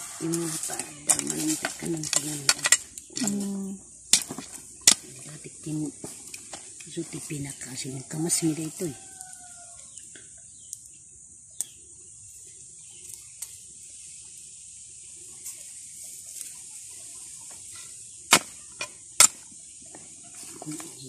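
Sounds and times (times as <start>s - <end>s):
digging blade knocking stony soil: 0.0s - 5.4s, 18.3s - 19.5s
steady high hiss: 0.0s - 21.0s.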